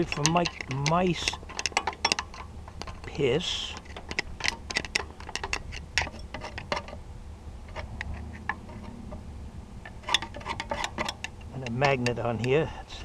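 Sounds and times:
screwdriver scraping metal fins: 0.0s - 7.0s, 7.7s - 9.0s, 9.9s - 12.5s.

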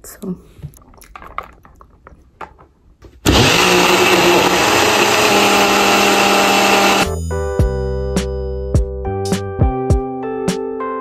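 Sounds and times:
hair dryer blowing: 3.3s - 7.1s.

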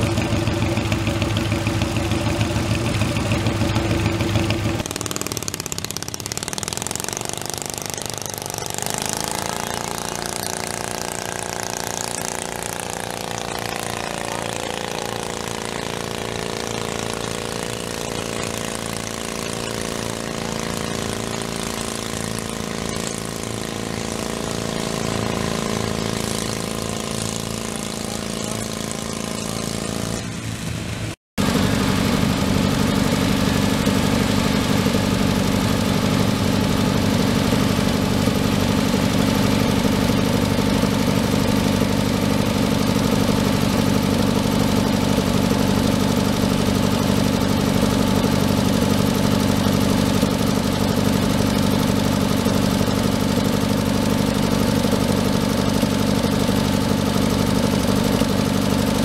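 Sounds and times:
garden tractor engine running: 0.0s - 59.0s.

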